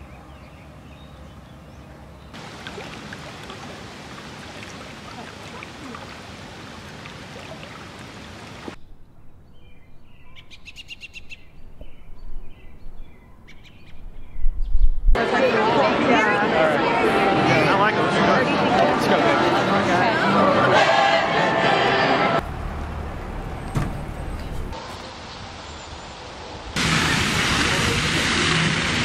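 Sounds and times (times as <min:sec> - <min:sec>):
songbirds chirping: 0:00.0 - 0:14.9
river water rushing: 0:02.4 - 0:08.8.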